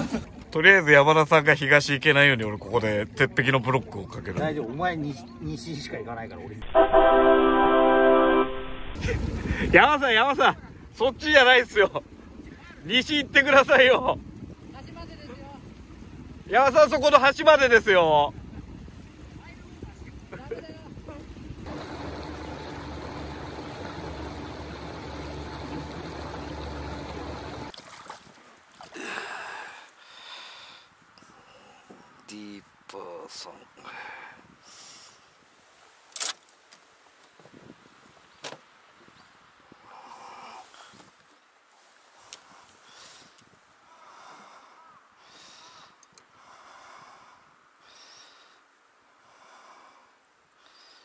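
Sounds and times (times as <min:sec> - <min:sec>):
water rushing past hull: 0:06.6 - 0:29.2
water splashing: 0:17.7 - 0:29.3
boat motor drone: 0:21.4 - 0:27.7
soft breathing: 0:29.0 - 0:32.2, 0:39.8 - 0:41.2, 0:42.0 - 0:51.0
faint clicks: 0:46.0 - 0:46.3.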